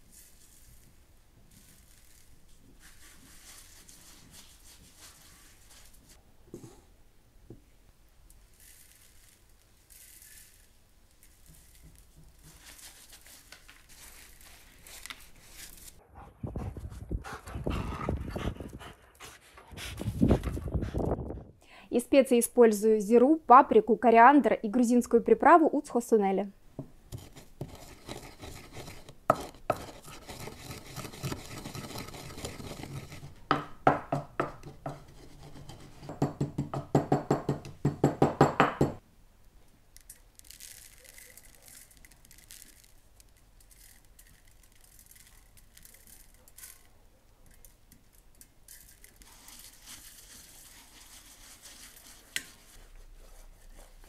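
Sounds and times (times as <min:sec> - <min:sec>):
hands rubbing spice into meat: 0:00.0 - 0:06.2, 0:49.2 - 0:54.0
wooden pestle grinding in mortar: 0:27.1 - 0:39.0.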